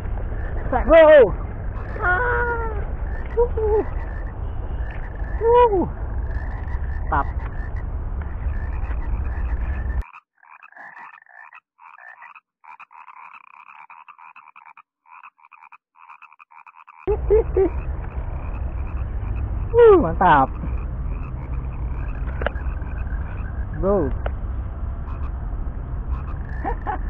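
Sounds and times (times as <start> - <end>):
wind rumble on microphone: 0.0 - 10.0, 17.1 - 27.0
frogs croaking: 0.0 - 27.0.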